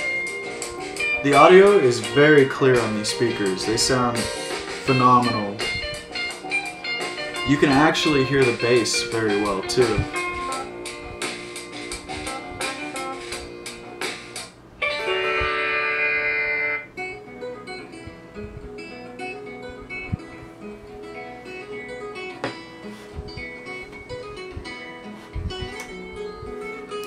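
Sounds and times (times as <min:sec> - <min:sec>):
guitar music from speakers: 0:00.0 - 0:27.0
held notes passage: 0:14.8 - 0:16.9.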